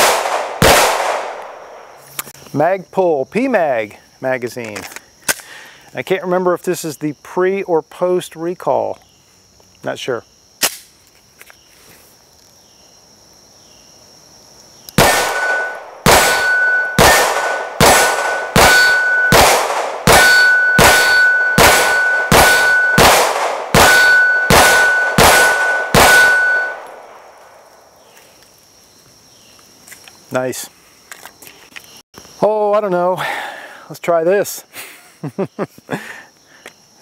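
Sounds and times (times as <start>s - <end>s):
pistol shots: 0.0s - 1.9s, 15.0s - 27.3s
bullets pinging steel target: 15.0s - 27.2s.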